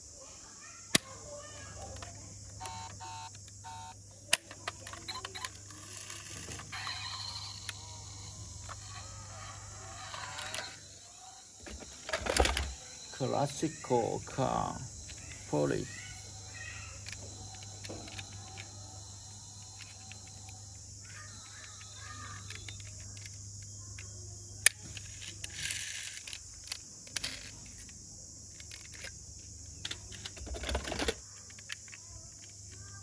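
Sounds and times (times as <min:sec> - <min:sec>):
high insect buzz: 0:00.0 - 0:04.3, 0:05.0 - 0:33.0
toy car clicks and taps: 0:04.3 - 0:07.0, 0:10.1 - 0:10.8, 0:16.9 - 0:18.8, 0:19.6 - 0:29.1, 0:29.8 - 0:33.0
toy cars clattering in basket: 0:11.7 - 0:12.8, 0:24.7 - 0:27.8, 0:29.8 - 0:32.5.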